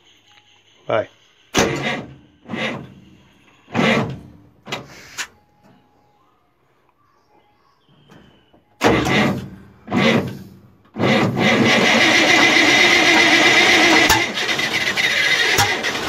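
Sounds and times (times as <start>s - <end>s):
starter motor cranking engine: 1.6s - 3.1s, 8.8s - 16.0s.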